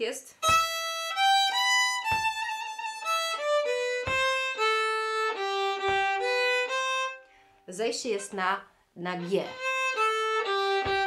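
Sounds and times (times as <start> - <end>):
low thump on the beat: 0.4 - 6.7, 9.8 - 11.0
solo fiddle: 0.4 - 7.6, 9.1 - 11.0.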